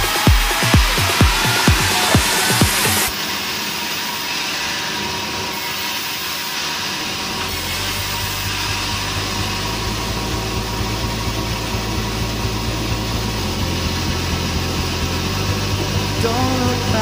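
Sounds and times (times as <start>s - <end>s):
saw blade rasping through wood: 0.0s - 10.6s
band saw machine hum: 0.0s - 17.0s.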